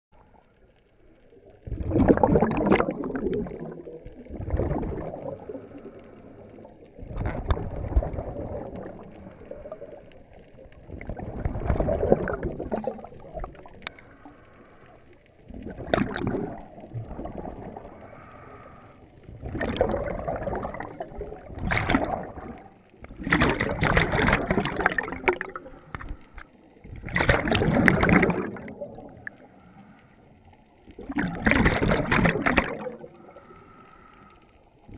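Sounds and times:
gurgling exhaled bubbles: 0:01.2 - 0:14.3, 0:15.4 - 0:29.7, 0:30.8 - 0:33.6
diver breathing through regulator: 0:13.8 - 0:15.1, 0:17.8 - 0:19.2, 0:33.0 - 0:34.6.

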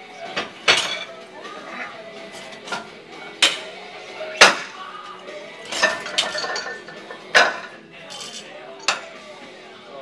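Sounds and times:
barbell plates clanking: 0:05.7 - 0:09.2.

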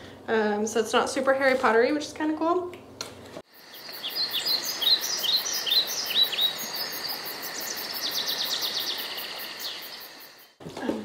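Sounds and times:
birds chirping: 0:03.5 - 0:10.6
buzzy bird trill: 0:03.6 - 0:10.2.

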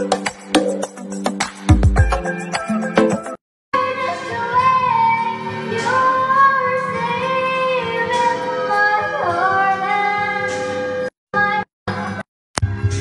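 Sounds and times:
instrumental backing music: 0:00.0 - 0:10.8.

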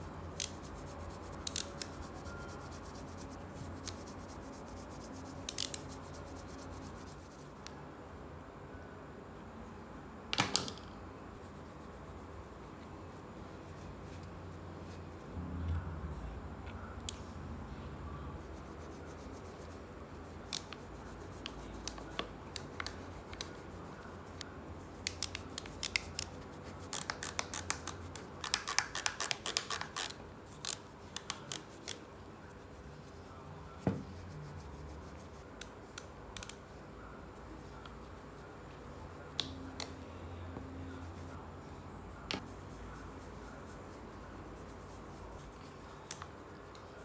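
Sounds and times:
sharp clicks and ticks: 0:26.9 - 0:32.0.

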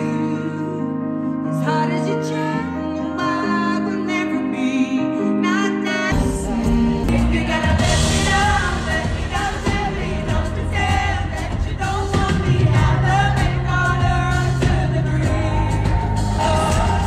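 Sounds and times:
person singing: 0:00.0 - 0:17.0
held bass notes: 0:06.2 - 0:17.0.

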